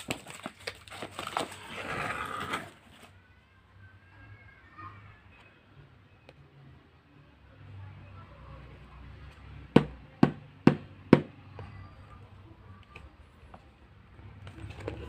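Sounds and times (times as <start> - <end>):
rustling of box being handled: 0.0 - 3.2.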